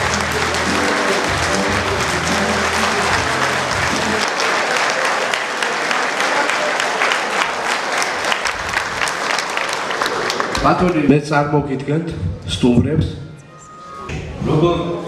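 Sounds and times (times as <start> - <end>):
music: 0.0 - 4.9
audience clapping: 0.0 - 11.4.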